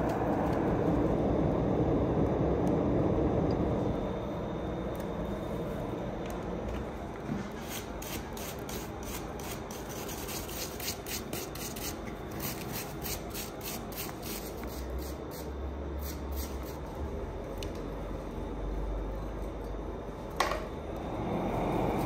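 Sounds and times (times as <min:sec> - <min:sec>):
wire brush rasping on steel: 0:07.6 - 0:15.4.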